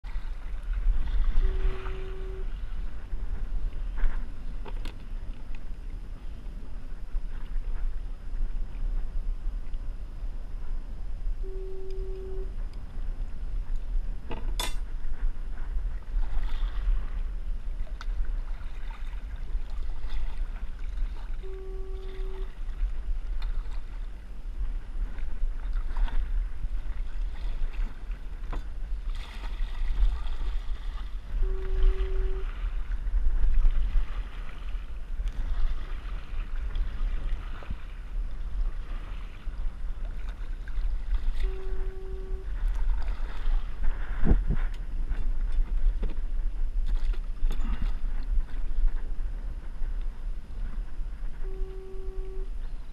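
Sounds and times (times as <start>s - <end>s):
kayak paddle splashing: 0.0s - 5.7s, 15.9s - 49.9s
wind on microphone: 0.0s - 52.9s
short low tone: 1.1s - 2.9s, 10.6s - 12.9s, 21.4s - 22.7s, 31.3s - 32.8s, 41.3s - 42.8s, 51.3s - 52.9s.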